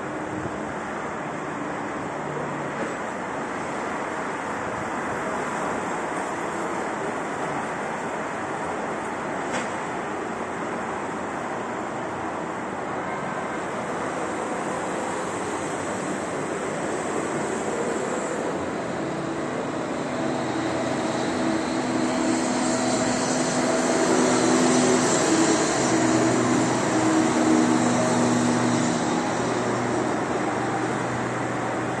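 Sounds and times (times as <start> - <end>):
vehicle passing with rushing drone: 14.9 - 32.0.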